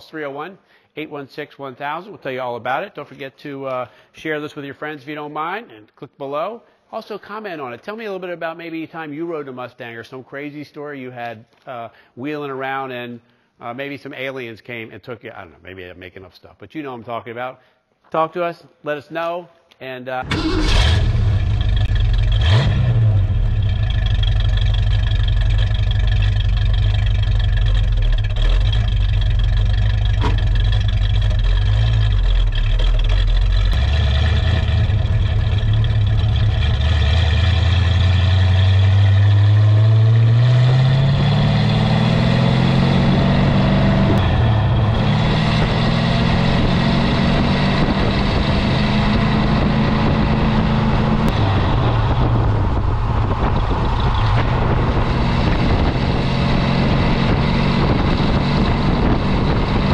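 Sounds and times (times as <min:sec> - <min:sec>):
car engine idling and revving: 0:20.3 - 0:59.9.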